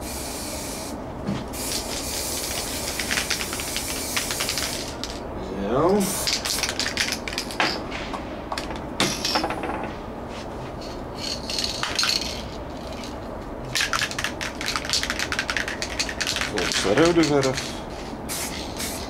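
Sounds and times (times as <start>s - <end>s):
spray can hissing: 0.0s - 1.0s, 1.6s - 5.2s, 6.0s - 7.2s, 13.8s - 19.0s
spray can rattling when shaken: 1.6s - 5.2s, 6.0s - 7.7s, 10.8s - 19.0s.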